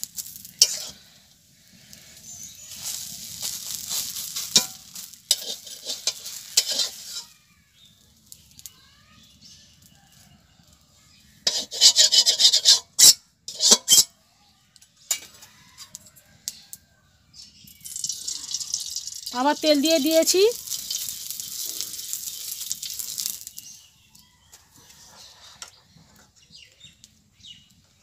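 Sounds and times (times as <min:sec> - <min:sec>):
frying sizzle in a pan: 0:00.0 - 0:14.2, 0:15.0 - 0:28.0
metal spatula scraping a pan: 0:00.1 - 0:07.4, 0:11.4 - 0:14.2, 0:15.1 - 0:16.0, 0:20.2 - 0:23.6, 0:24.8 - 0:26.4
pan and utensils clattering: 0:00.6 - 0:01.0, 0:02.7 - 0:07.4, 0:11.4 - 0:14.1, 0:15.1 - 0:15.9, 0:17.9 - 0:23.5.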